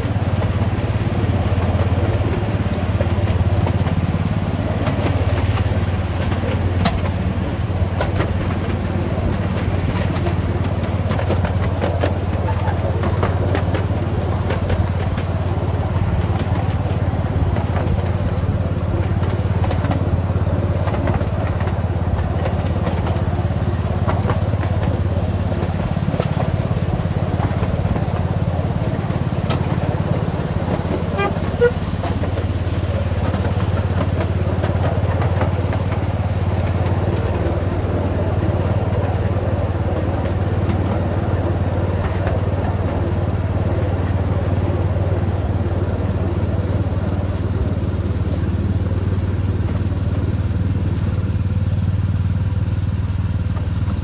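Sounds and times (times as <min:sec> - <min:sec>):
locomotive engine droning: 0:00.0 - 0:54.0
short squeak: 0:31.1 - 0:31.8.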